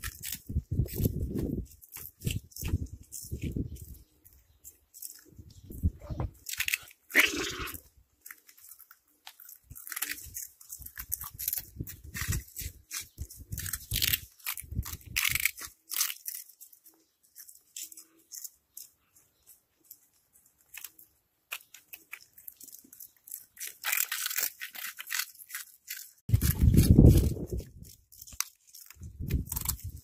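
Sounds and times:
cats crunching snacks: 0:00.0 - 0:30.0.

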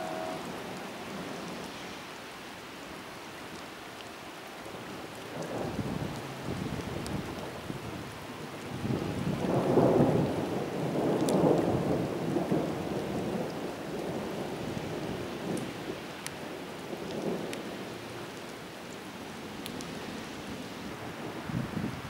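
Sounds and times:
thunder rumbling: 0:00.0 - 0:01.6, 0:08.7 - 0:13.5
rain hiss: 0:00.0 - 0:22.0.

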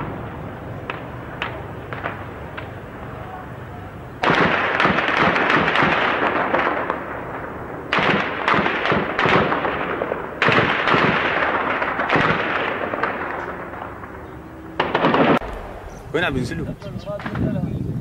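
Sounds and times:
loud explosions: 0:00.0 - 0:03.4, 0:04.2 - 0:17.7
echoing rumble: 0:00.0 - 0:18.0
gunfire cracks: 0:04.2 - 0:16.1.

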